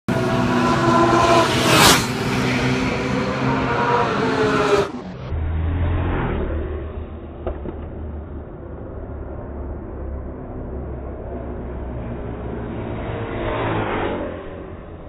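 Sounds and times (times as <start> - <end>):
motorcycle engine revving past: 0.1 - 7.9, 12.3 - 15.0
low rumble: 5.1 - 15.0.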